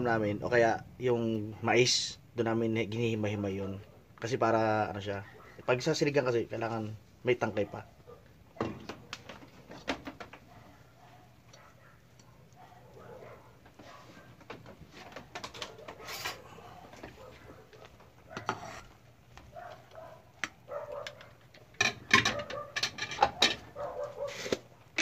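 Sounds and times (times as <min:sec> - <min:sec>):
dog barking and whining: 0:05.2 - 0:05.8, 0:07.6 - 0:09.2, 0:10.4 - 0:14.4, 0:15.5 - 0:18.8, 0:19.5 - 0:21.4, 0:22.2 - 0:24.8.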